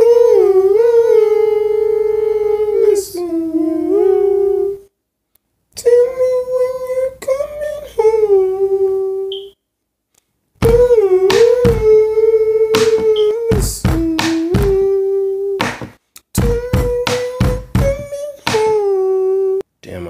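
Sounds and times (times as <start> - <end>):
woman singing wordless melody: 10.6 - 15.6.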